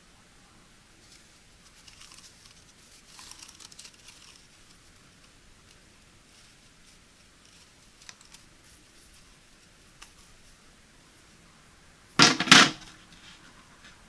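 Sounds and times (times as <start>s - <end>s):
plastic rack clattering onto tray: 12.2s - 12.9s.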